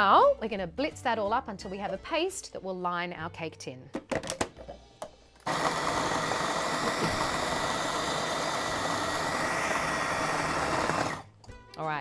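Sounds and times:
food processor chopping: 5.4s - 11.3s.

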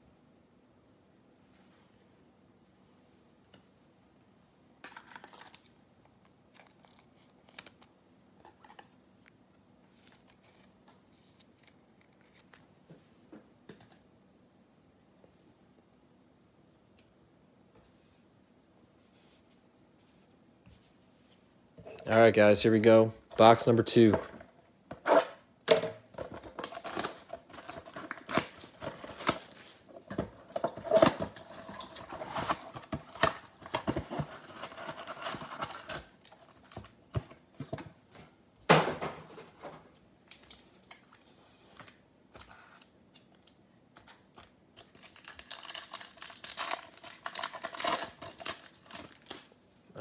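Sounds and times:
foil wrapper crinkling: 44.8s - 49.5s
foil pack tearing: 45.0s - 49.5s.

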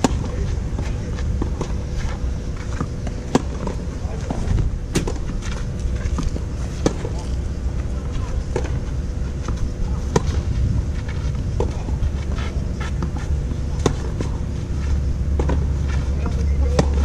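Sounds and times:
steady low rumble: 0.0s - 17.0s
tennis ball hit by rackets: 2.8s - 5.3s, 9.4s - 10.4s, 13.0s - 14.3s, 15.4s - 17.0s.

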